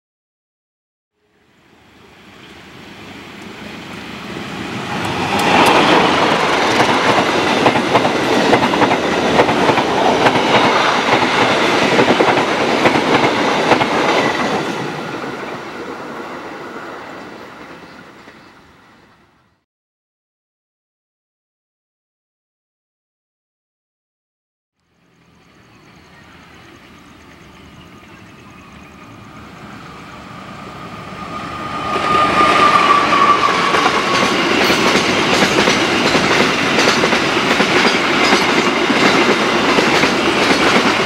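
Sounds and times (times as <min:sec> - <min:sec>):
train passing rumble: 0:01.3 - 0:19.6, 0:24.8 - 0:41.0
wheels clacking over rail joints: 0:04.8 - 0:14.6, 0:33.1 - 0:41.0.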